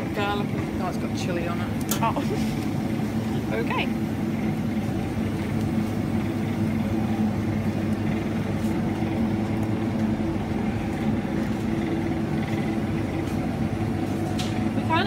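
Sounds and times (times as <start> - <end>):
refrigerator hum: 0.0 - 15.0
shopping trolley rumbling: 0.0 - 15.0.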